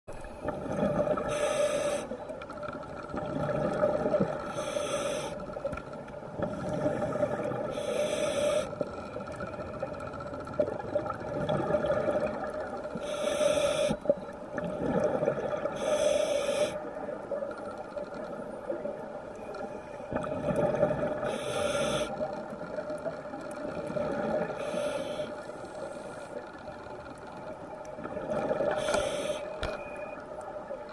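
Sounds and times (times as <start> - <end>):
regulator hiss on inhalation: 1.2 - 2.2, 4.5 - 5.4, 7.7 - 8.9, 13.0 - 14.1, 15.8 - 16.8, 21.3 - 22.2, 24.6 - 26.3, 28.7 - 29.6.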